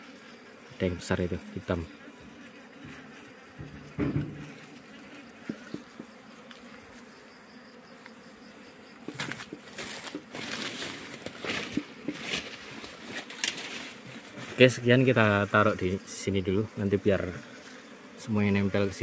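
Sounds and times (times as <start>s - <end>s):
bees buzzing: 0.0s - 19.0s
rustling with sharp knocks: 2.2s - 4.8s, 9.0s - 14.6s.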